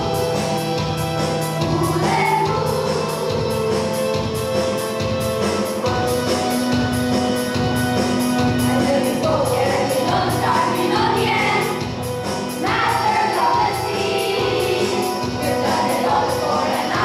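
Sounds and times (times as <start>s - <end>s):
backing music with steady beat: 0.0s - 17.0s
youth choir singing: 1.6s - 4.2s, 8.7s - 17.0s.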